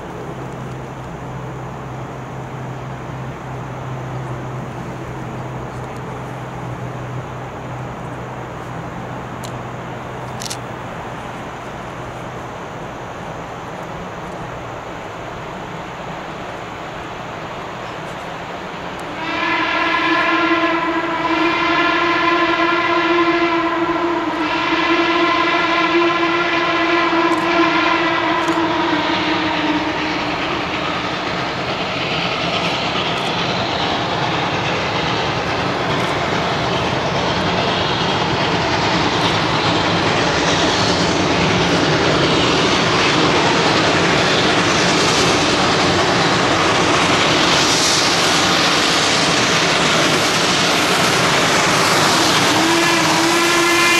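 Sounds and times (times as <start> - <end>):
hiss of steam and exhaust: 0.0 - 53.9
steam locomotive whistle: 19.0 - 53.9.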